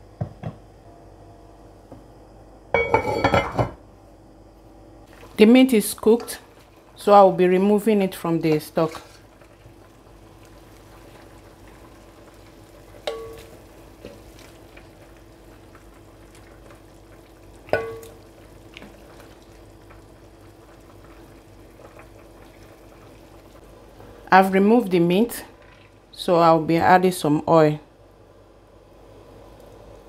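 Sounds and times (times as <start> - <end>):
liquid faintly sizzling: 5.0 - 30.0
ladle scooping in a pot: 8.8 - 9.7.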